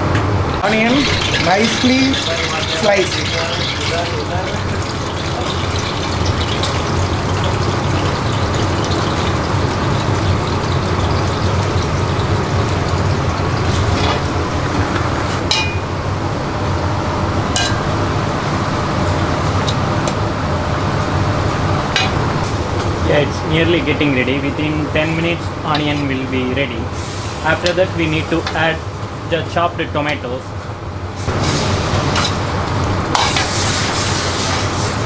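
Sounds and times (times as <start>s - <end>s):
low kitchen hum: 0.0s - 35.0s
onions sizzling in oil: 0.6s - 15.4s.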